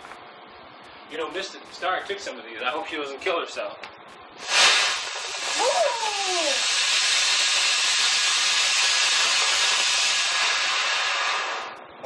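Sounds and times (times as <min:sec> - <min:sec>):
firework hissing: 0:04.4 - 0:11.8.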